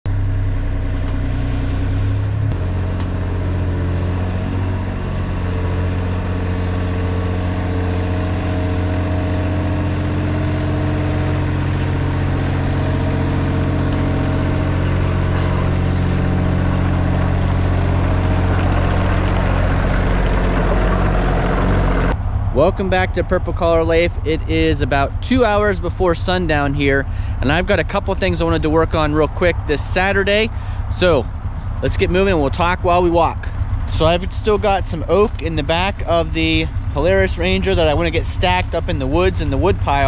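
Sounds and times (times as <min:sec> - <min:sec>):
excavator diesel engine running: 0:00.1 - 0:40.0.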